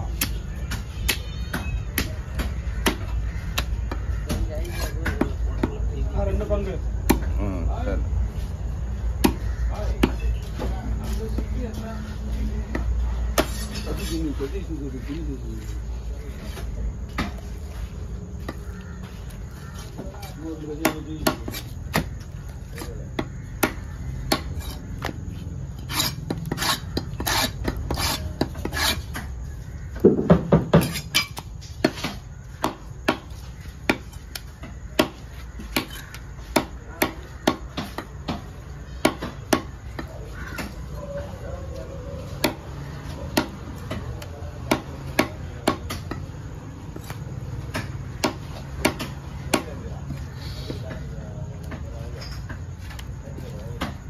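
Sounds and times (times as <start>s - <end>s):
knife chopping fish on wood block: 0.2s - 5.8s, 9.2s - 10.2s, 20.8s - 22.2s, 22.8s - 25.2s, 30.3s - 40.8s, 42.4s - 42.7s, 43.3s - 46.3s, 46.9s - 49.8s.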